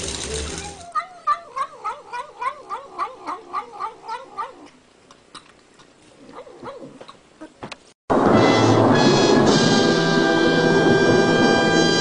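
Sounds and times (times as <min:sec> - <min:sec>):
cat yowling: 0:00.5 - 0:04.8.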